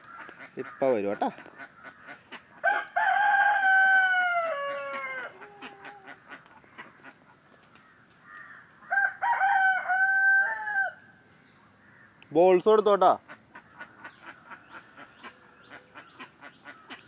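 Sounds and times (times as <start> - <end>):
bird calling: 4.4 - 9.0, 11.4 - 12.6, 13.2 - 17.0.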